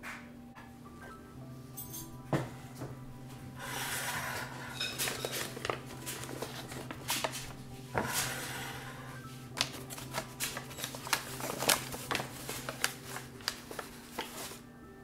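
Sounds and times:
paper rustling in ceramic pot: 3.6 - 14.7.

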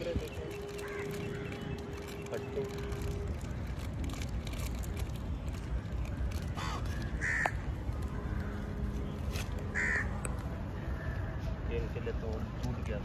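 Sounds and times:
crows cawing: 0.6 - 3.1, 6.5 - 8.9, 9.7 - 10.2.

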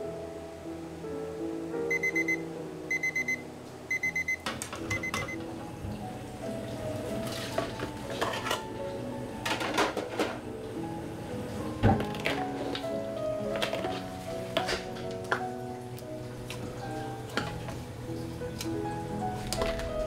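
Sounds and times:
high electronic beeps: 1.9 - 5.4
dishes and utensils clattering: 7.0 - 10.5, 13.5 - 15.5, 16.4 - 17.8.

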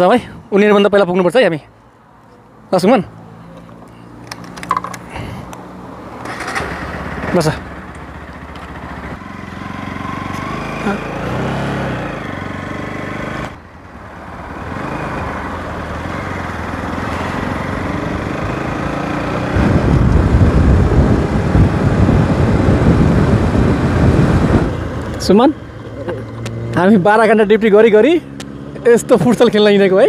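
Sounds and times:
motorcycle engine accelerating: 6.2 - 30.0
wind rush on microphone: 19.4 - 25.1.

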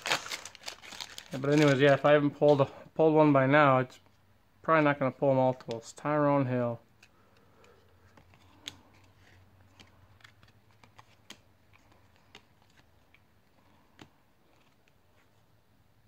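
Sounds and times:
cardboard cards flipping: 6.9 - 15.4.

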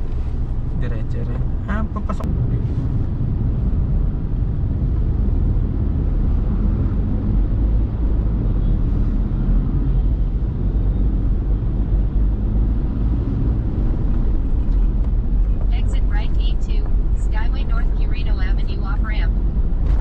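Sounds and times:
car interior engine and tyre noise: 0.0 - 20.0.

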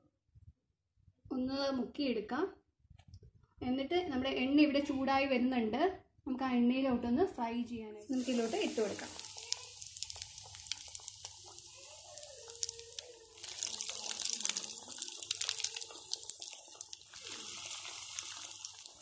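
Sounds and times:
patties deep-frying in oil: 8.0 - 19.0.

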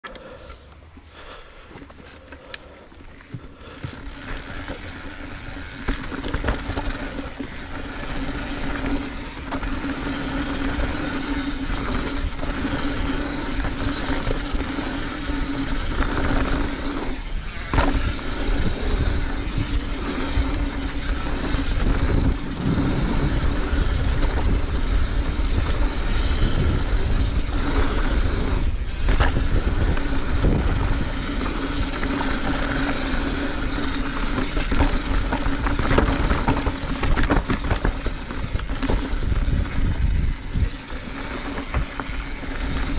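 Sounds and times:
bike tyres rolling on dirt: 0.0 - 42.9
steady hum: 2.3 - 31.6.

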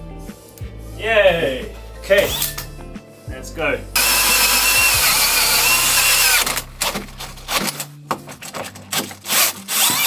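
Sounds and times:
cordless drill whining: 4.0 - 6.6, 9.3 - 10.0.

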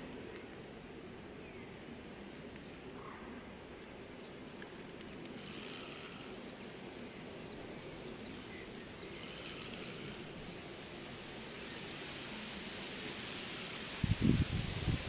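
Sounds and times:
outdoor background noise: 0.0 - 15.0
faint bird calls: 2.9 - 10.4.

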